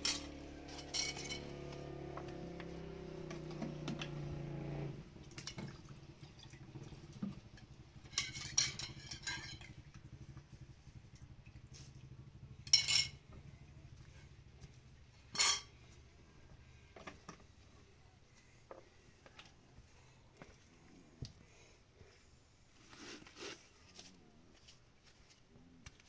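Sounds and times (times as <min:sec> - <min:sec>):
metal utensils and dishes clinking: 0:00.0 - 0:02.0, 0:08.0 - 0:09.8, 0:12.7 - 0:13.2, 0:15.3 - 0:15.8.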